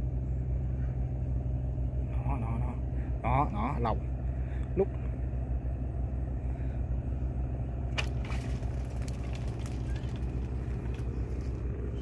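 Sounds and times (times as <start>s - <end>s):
low rumble: 0.0s - 12.0s
fish splashing out of water: 7.9s - 11.4s.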